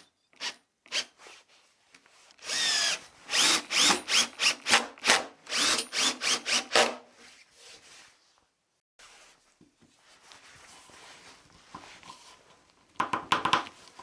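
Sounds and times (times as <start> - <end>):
cordless drill driving screws: 2.4 - 7.0.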